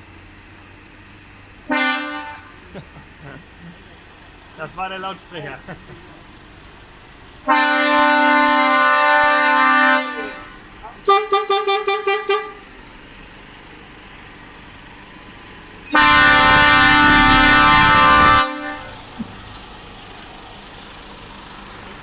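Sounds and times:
truck air horn toots: 0:01.6 - 0:02.6, 0:07.4 - 0:12.6, 0:15.9 - 0:19.1
long truck horn blast: 0:01.6 - 0:02.7, 0:07.4 - 0:12.7, 0:15.9 - 0:19.1.

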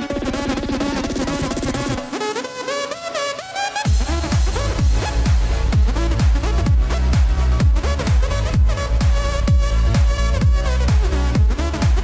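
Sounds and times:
electronic dance music: 0:00.0 - 0:12.0
deep kick drum: 0:03.9 - 0:12.0.

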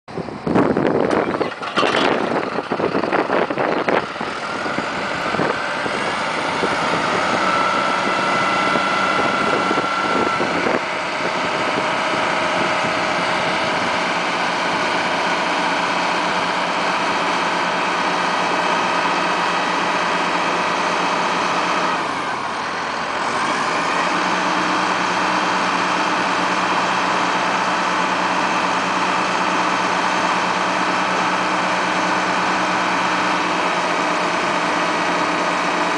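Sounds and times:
forklift engine running: 0:00.1 - 0:35.9.

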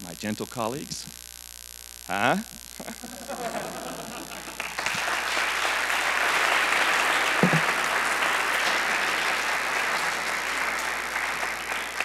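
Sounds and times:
audience applauding: 0:03.1 - 0:12.0.

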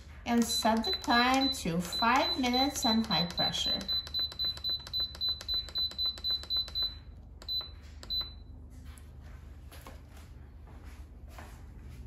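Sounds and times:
control panel beeps: 0:00.3 - 0:08.5.

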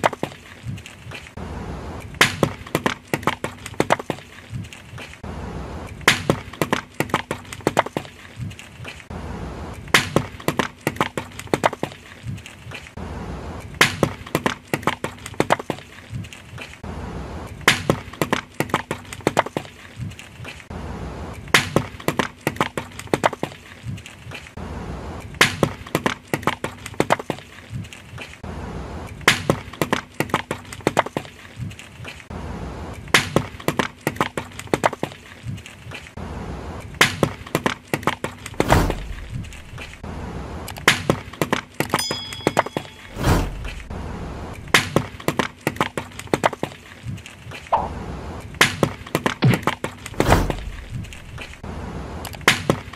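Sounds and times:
low thud: 0:38.5 - 0:40.1, 0:43.1 - 0:45.0, 0:49.4 - 0:51.7.

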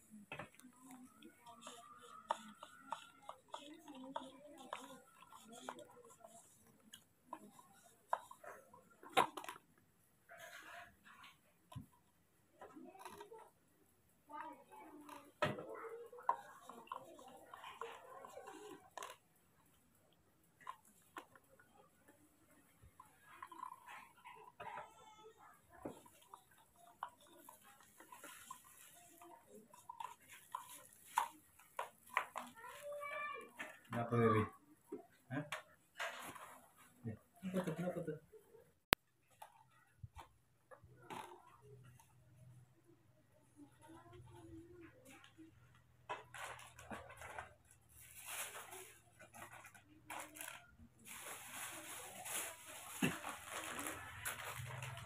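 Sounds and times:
spoon stirring in plastic cup: 0:00.4 - 0:09.6, 0:14.7 - 0:32.9
plastic bag rustling: 0:48.0 - 0:55.0.

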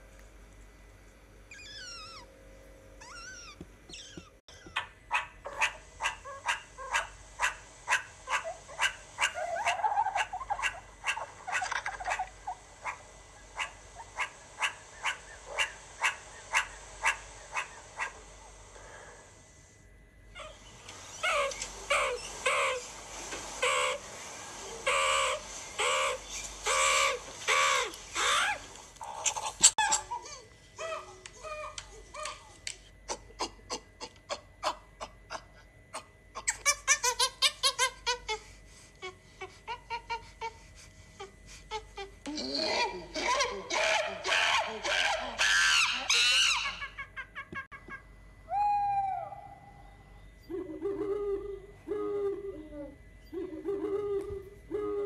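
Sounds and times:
meerkats chirping: 0:01.5 - 0:02.3, 0:03.0 - 0:18.3, 0:20.4 - 0:23.0, 0:23.6 - 0:24.1, 0:24.7 - 0:32.5, 0:43.2 - 0:47.0
meerkats pitched calls: 0:01.5 - 0:02.3, 0:03.0 - 0:18.3, 0:20.4 - 0:22.9, 0:23.6 - 0:24.1, 0:24.8 - 0:32.5, 0:43.2 - 0:47.0.

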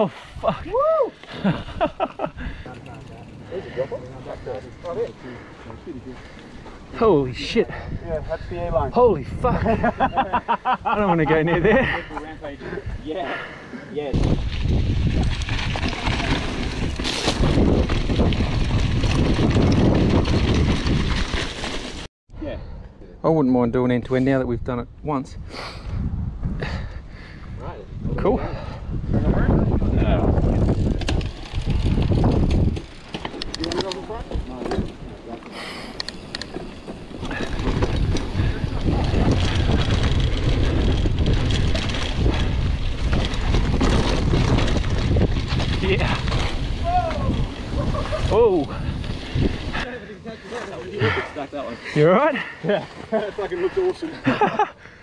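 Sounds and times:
wind buffeting microphone: 0:00.0 - 0:13.1, 0:14.1 - 0:21.6, 0:24.3 - 0:35.3, 0:35.9 - 0:55.0
mountain bike rumbling on dirt trail: 0:01.2 - 0:10.4, 0:11.0 - 0:22.1, 0:28.4 - 0:55.0
bike clicks and knocks: 0:30.7 - 0:46.7.

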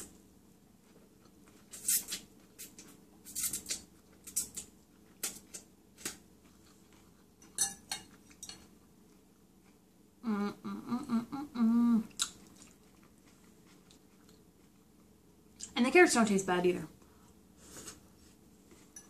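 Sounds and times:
metal fork clinking on glass bowl: 0:07.4 - 0:08.6.

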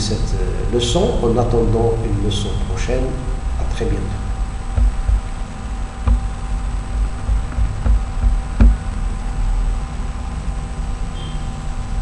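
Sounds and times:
electrical hum and hiss: 0:00.0 - 0:12.0
dull knocks and bumps: 0:04.7 - 0:05.4, 0:06.0 - 0:06.3, 0:07.1 - 0:09.0.

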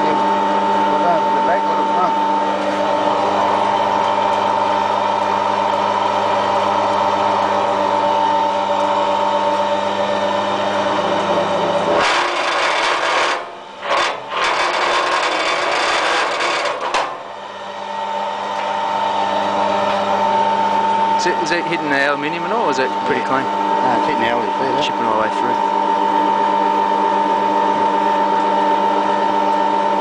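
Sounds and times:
machine motor hum: 0:00.0 - 0:30.0
cable scraping through blades: 0:11.9 - 0:17.1.

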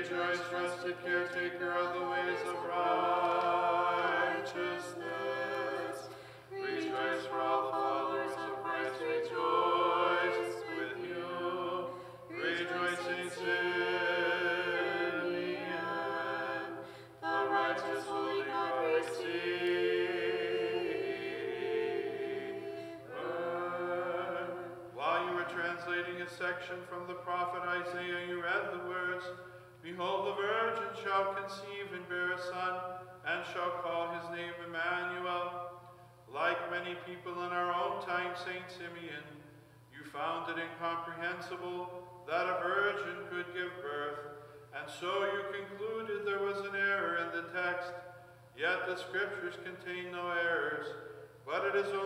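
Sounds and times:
choir singing a cappella: 0:00.0 - 0:26.5, 0:50.2 - 0:52.0
singers breathing: 0:06.0 - 0:06.5, 0:11.9 - 0:12.3, 0:16.8 - 0:17.2.

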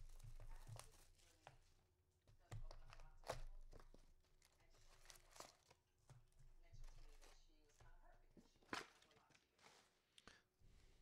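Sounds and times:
wrappers crinkling and tearing: 0:04.4 - 0:05.8.

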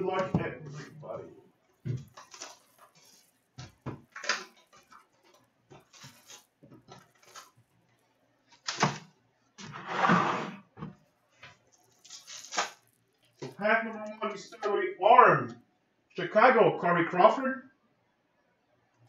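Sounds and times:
plastic wrap crinkling: 0:00.0 - 0:09.8, 0:10.7 - 0:14.7.

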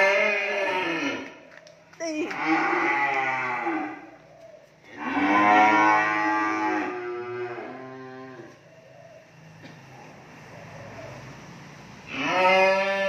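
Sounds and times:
cow mooing: 0:00.0 - 0:01.4, 0:02.3 - 0:04.1, 0:04.9 - 0:08.6, 0:12.1 - 0:13.0.

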